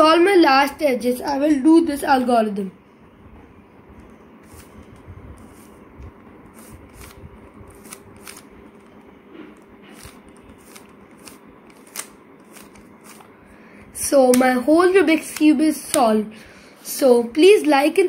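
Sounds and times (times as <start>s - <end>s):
puzzle cube clicking and scraping: 6.5s - 13.3s.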